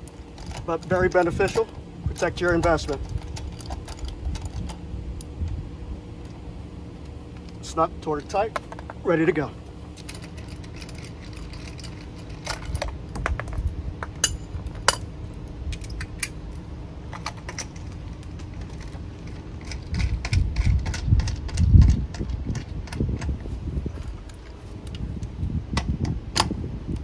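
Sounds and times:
dull low bumps: 0:10.1 - 0:16.0.

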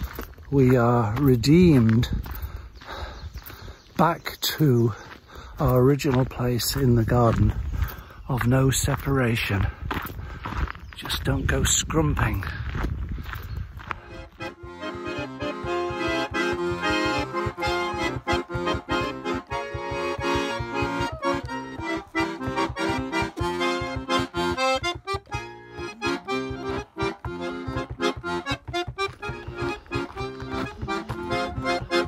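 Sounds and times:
instrumental music with steady beat: 0:14.0 - 0:32.0.

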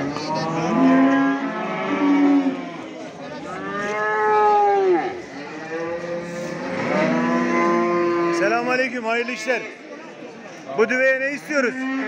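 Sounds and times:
cattle mooing: 0:00.0 - 0:02.9, 0:03.5 - 0:08.7.

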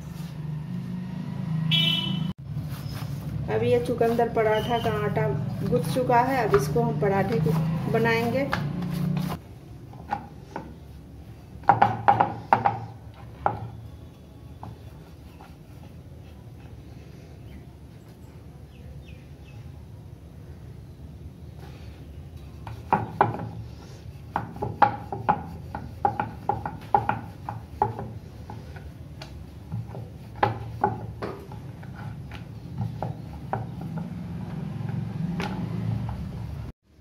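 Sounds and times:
rolling pin knocking on board: 0:11.6 - 0:13.7, 0:22.7 - 0:23.6, 0:24.3 - 0:34.2.

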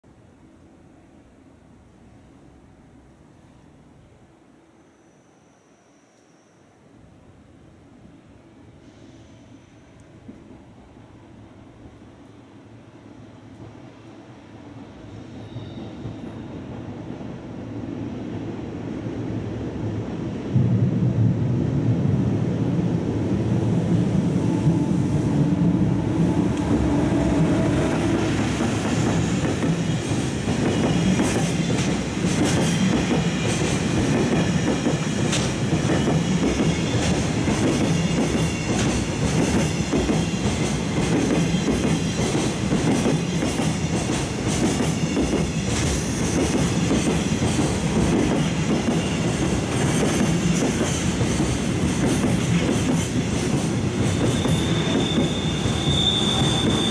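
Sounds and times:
wheels and brakes squealing: 0:04.8 - 0:06.8, 0:15.1 - 0:16.5, 0:54.0 - 0:56.9
train rumble: 0:14.8 - 0:56.9.

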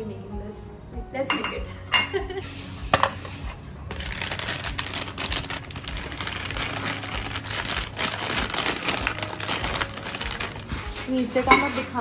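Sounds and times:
paper wrapper crinkling: 0:03.9 - 0:11.4.

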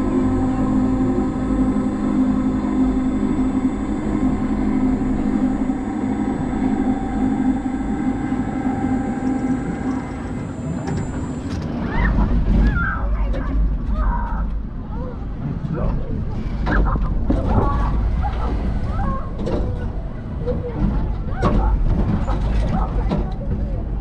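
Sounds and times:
electric drive hum with whine: 0:00.0 - 0:13.0.

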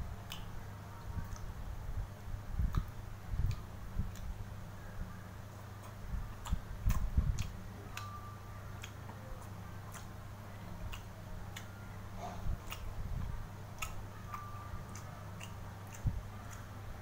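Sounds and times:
low hum: 0:00.0 - 0:17.0
person chewing: 0:02.7 - 0:04.3, 0:05.7 - 0:16.7.

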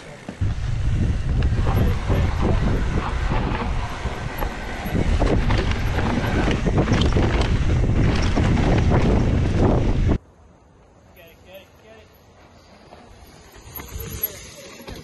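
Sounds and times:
tyres rumbling on dirt trail: 0:00.0 - 0:15.0
wind rushing over microphone: 0:00.4 - 0:10.2
bike rattles and knocks: 0:01.2 - 0:10.1, 0:13.3 - 0:15.0.

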